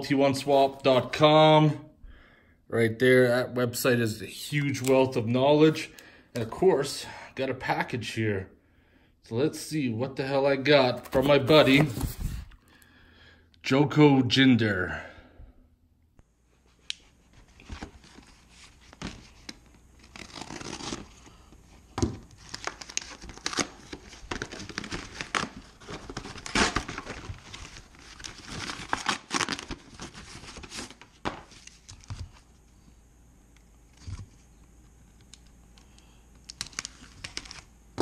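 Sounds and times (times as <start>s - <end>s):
paper tearing: 20.0s - 21.3s.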